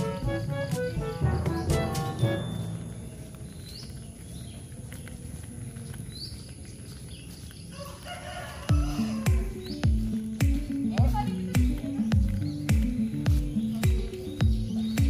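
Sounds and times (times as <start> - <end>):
music with deep bass beat: 0.0 - 3.1, 8.7 - 15.0
rising bird chirp: 0.0 - 4.8.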